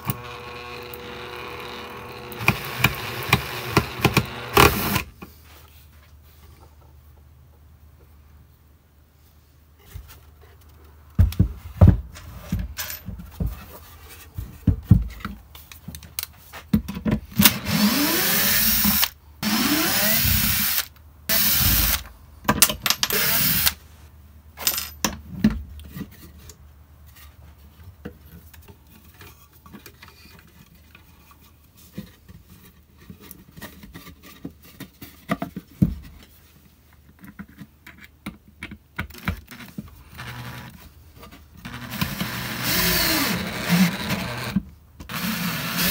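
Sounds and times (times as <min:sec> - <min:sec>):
cordless drill driving screws: 0:00.0 - 0:05.1, 0:17.4 - 0:22.0, 0:23.1 - 0:23.8, 0:40.1 - 0:40.7, 0:41.7 - 0:45.9.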